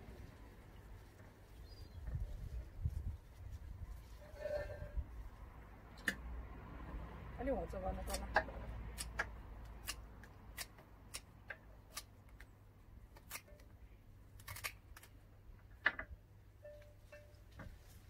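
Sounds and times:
scissors snipping stems: 8.0s - 12.5s, 13.1s - 13.7s, 14.4s - 15.1s.

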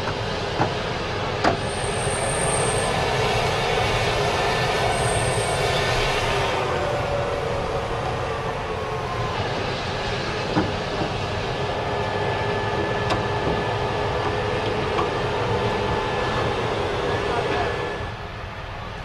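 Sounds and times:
freight train rumbling by: 0.0s - 19.0s
wheel squeal: 1.5s - 11.2s.

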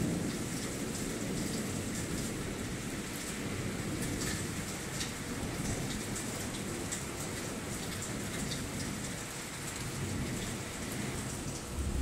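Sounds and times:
steady rain: 0.0s - 12.0s
low thunder rumble: 11.0s - 12.0s.

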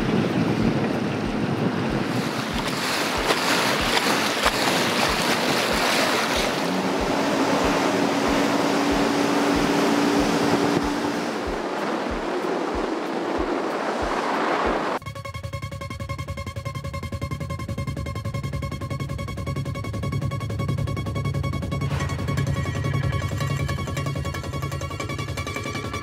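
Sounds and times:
water rushing and splashing: 0.0s - 15.0s
wind buffeting microphone: 0.0s - 15.0s
steady hum: 0.0s - 22.0s
low thudding: 6.4s - 15.0s.

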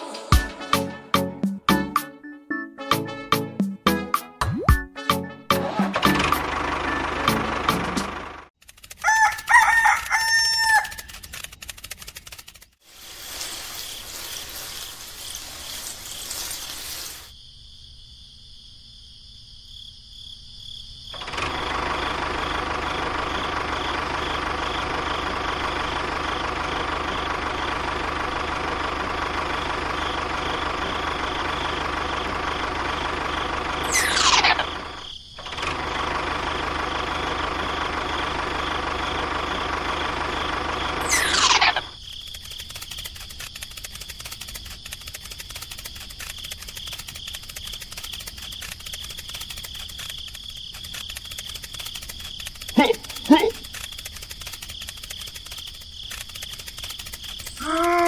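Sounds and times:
engine drone: 5.7s - 8.5s, 21.2s - 57.8s
rooster crowing: 9.0s - 11.1s.

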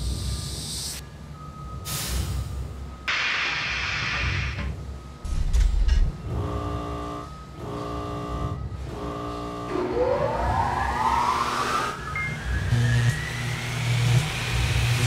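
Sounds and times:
buzzing warning tones: 4.9s - 15.0s
machine whine rising in pitch: 6.3s - 15.0s.

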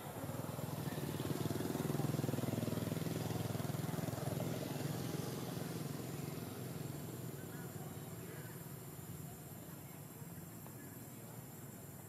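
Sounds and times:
vehicle engine passing by: 0.0s - 9.4s.

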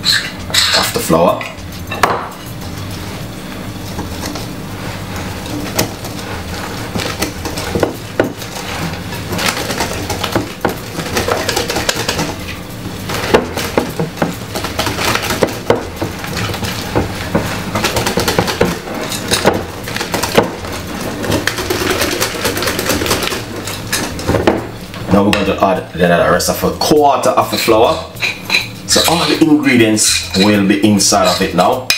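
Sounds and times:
steady low hum: 0.0s - 31.9s
whisk scraping a mixing bowl: 4.0s - 24.4s, 27.5s - 31.7s.

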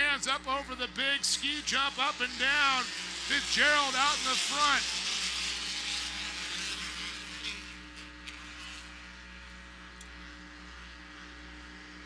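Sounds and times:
race buggy engines running at speed: 0.0s - 7.8s
steady low hum: 0.0s - 12.0s.

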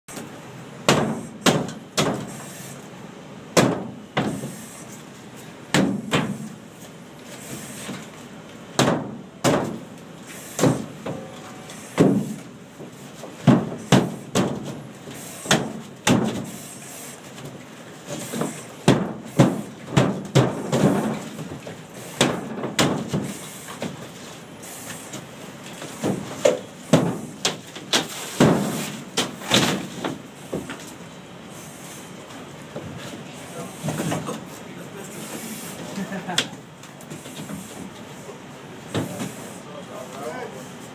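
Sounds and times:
drywall being struck and broken: 0.9s - 2.2s, 3.6s - 4.4s, 8.8s - 9.8s, 13.4s - 14.8s, 15.5s - 16.5s, 22.2s - 23.9s, 26.0s - 30.2s.

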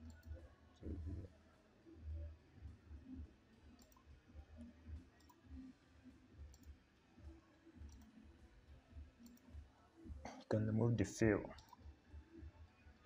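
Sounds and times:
faint mouse clicks: 0.0s - 0.4s, 3.5s - 5.6s, 6.5s - 8.3s, 9.2s - 9.6s, 11.5s - 11.9s.

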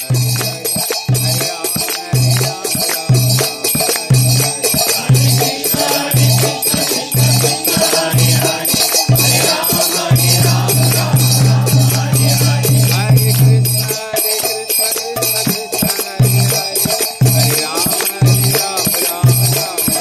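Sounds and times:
jangling hand cymbals and rattles: 0.0s - 20.0s
voices singing devotional music: 0.0s - 20.0s.

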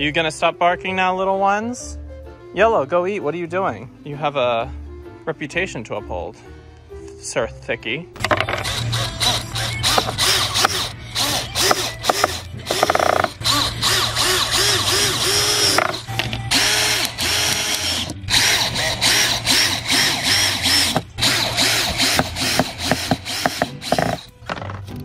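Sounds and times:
cordless drill driving screws: 8.4s - 24.3s.

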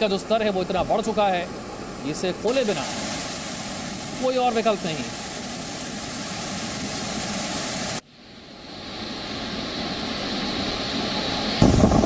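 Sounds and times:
water rushing through spillway: 0.0s - 8.0s.

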